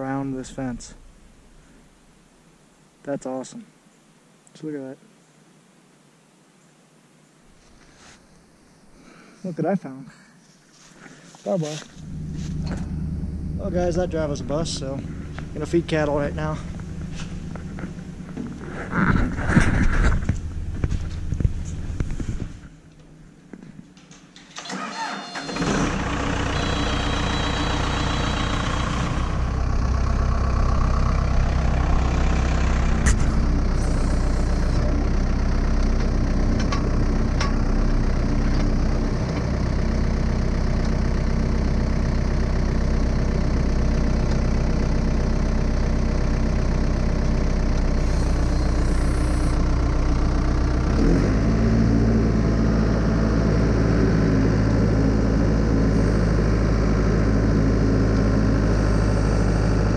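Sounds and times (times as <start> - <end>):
loader engine running: 0.0 - 2.1, 11.8 - 22.9, 24.0 - 59.9.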